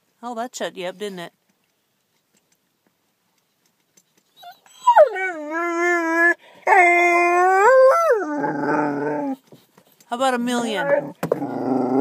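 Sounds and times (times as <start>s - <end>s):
dog howling: 4.4s - 9.4s, 10.7s - 12.0s
dog grumbling: 8.2s - 9.4s, 10.7s - 12.0s.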